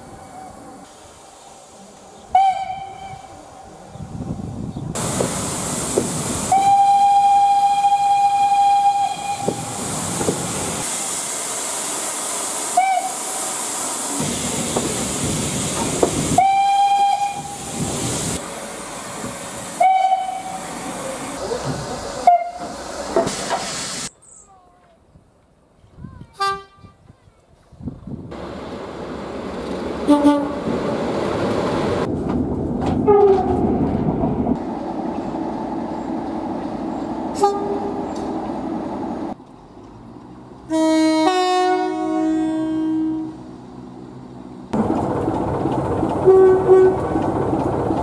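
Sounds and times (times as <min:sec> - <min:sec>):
hiss of steam: 0:00.0 - 0:02.4, 0:05.0 - 0:24.1
train rumbling: 0:00.0 - 0:24.1, 0:27.9 - 0:48.0
steam locomotive whistle: 0:02.3 - 0:03.4, 0:06.5 - 0:09.7, 0:12.7 - 0:13.2, 0:16.3 - 0:17.8, 0:19.8 - 0:20.7, 0:22.2 - 0:22.7, 0:46.2 - 0:47.0.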